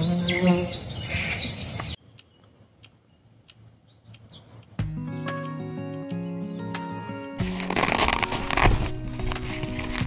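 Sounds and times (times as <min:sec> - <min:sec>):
birds chirping: 0:00.0 - 0:07.4.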